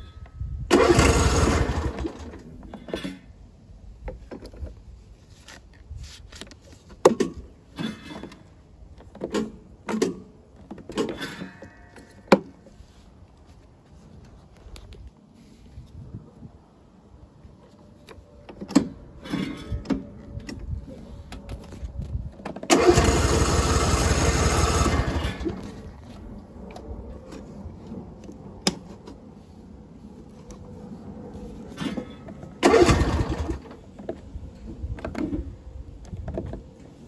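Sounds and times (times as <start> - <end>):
electric starter cranking engine: 0.7 - 2.6, 22.6 - 25.9, 32.6 - 33.9.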